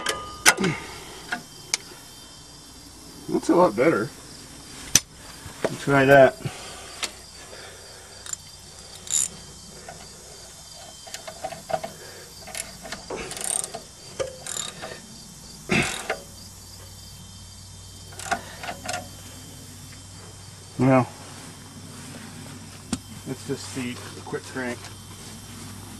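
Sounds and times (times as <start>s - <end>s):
wrench clinking on metal: 0.0s - 0.6s, 8.2s - 10.0s, 10.8s - 14.9s.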